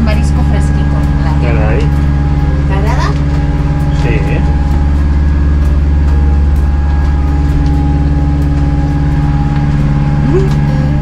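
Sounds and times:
boat engine low hum: 0.0s - 11.0s.

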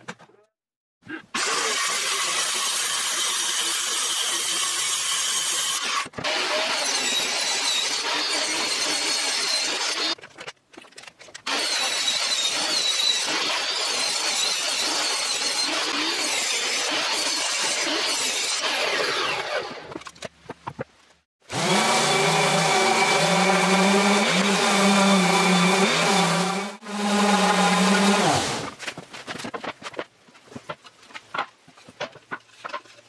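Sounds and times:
circular saw cutting plywood: 1.4s - 10.2s, 11.5s - 19.9s, 21.4s - 28.8s
table saw cutting plywood: 1.4s - 10.2s, 11.5s - 19.9s, 21.4s - 28.7s.

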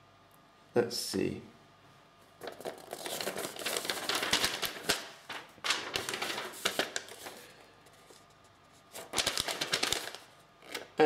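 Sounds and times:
paper rustling and crackling: 2.4s - 11.0s.

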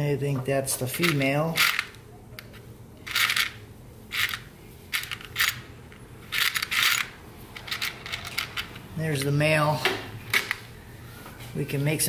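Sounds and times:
connectors rattling in plastic box: 6.3s - 8.7s.

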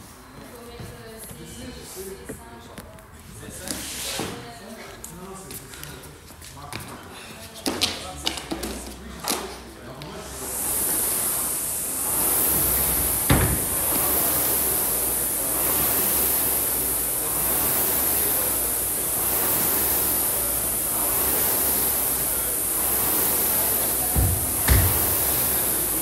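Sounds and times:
rowing machine flywheel whooshing: 10.2s - 26.0s.

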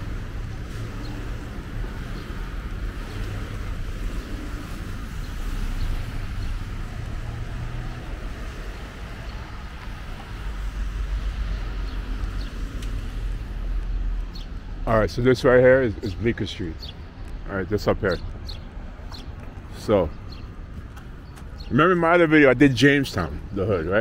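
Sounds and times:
tyres hissing on wet road: 0.0s - 16.7s.

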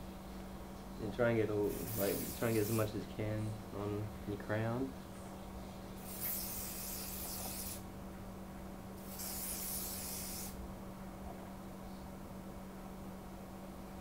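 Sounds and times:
aerosol can spraying: 1.7s - 2.9s, 6.0s - 7.8s, 9.0s - 10.6s.

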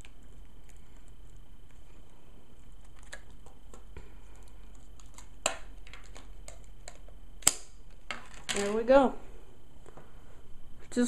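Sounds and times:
sharp plastic snaps: 5.0s - 7.8s.

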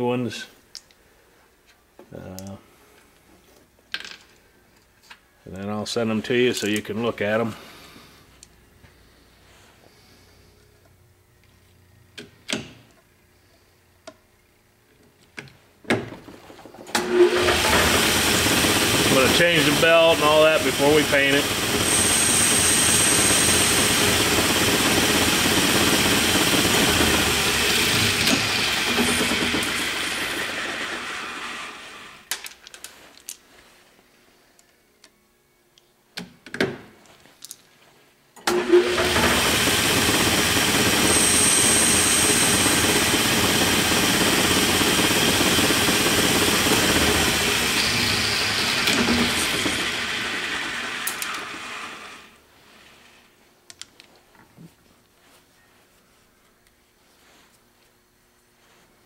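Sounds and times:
lathe spindle running and cutting: 17.0s - 32.2s, 38.5s - 52.3s.

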